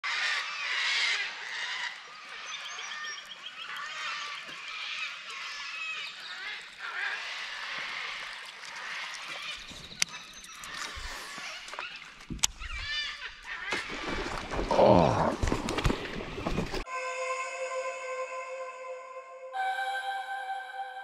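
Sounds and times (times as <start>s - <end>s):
birds chorus: 0.0s - 16.6s.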